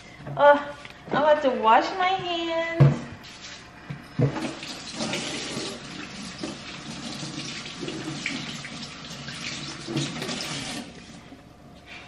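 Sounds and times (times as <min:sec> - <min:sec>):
tap water running into sink: 0:04.2 - 0:10.9.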